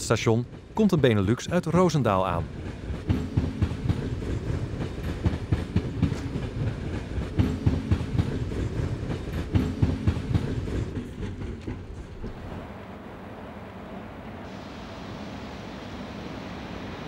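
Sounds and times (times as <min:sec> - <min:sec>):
low train rumble: 0:00.0 - 0:17.0
train wheels clicking over rail joints: 0:02.5 - 0:12.6.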